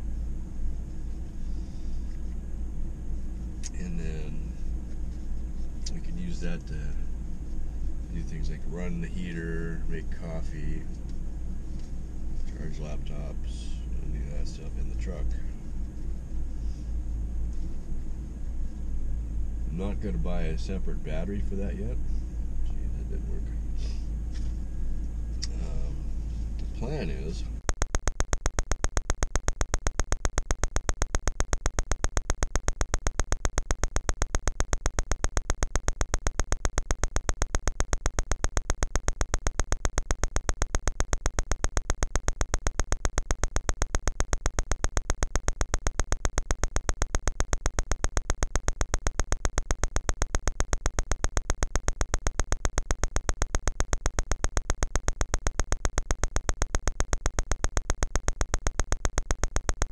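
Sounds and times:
rapid evenly spaced clicks: 0:27.6 - 0:59.9.

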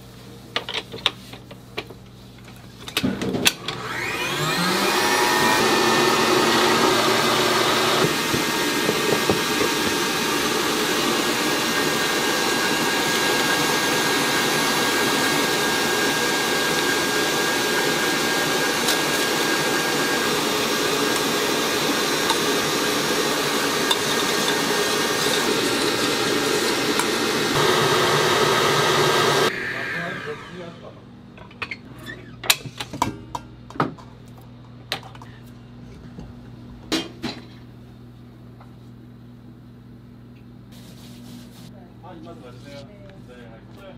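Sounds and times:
stand mixer motor whir: 0:03.6 - 0:30.8
whisk whipping eggs: 0:04.0 - 0:30.1.

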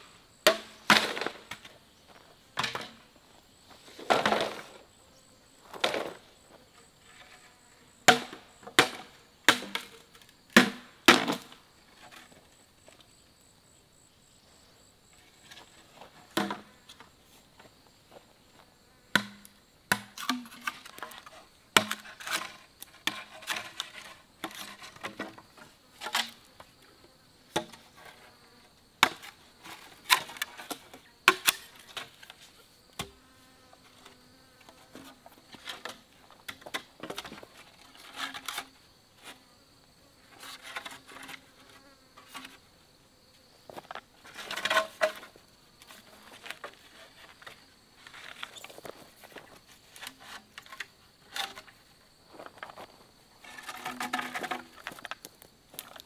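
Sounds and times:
bamboo poles knocking: 0:19.1 - 0:21.0, 0:53.5 - 0:55.2.

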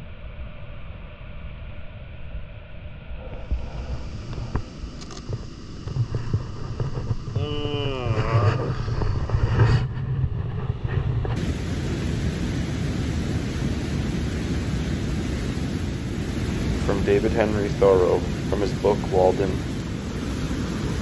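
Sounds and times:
wind rumbling on microphone: 0:00.0 - 0:21.0
steady hiss: 0:03.2 - 0:09.6, 0:11.4 - 0:21.0
person exclaiming: 0:07.4 - 0:08.7.

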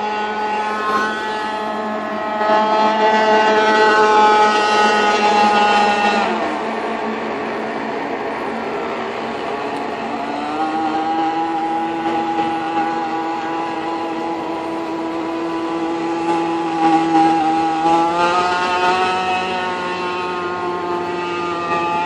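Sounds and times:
model boat motor buzzing: 0:09.3 - 0:22.0.

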